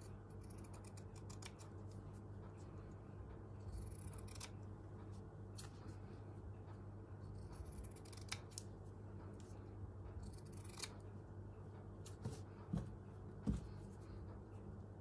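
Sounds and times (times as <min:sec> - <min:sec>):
scissors snipping fabric: 0:00.0 - 0:01.7, 0:03.6 - 0:04.6, 0:07.2 - 0:08.7, 0:10.3 - 0:11.0
faint low hum: 0:00.0 - 0:15.0.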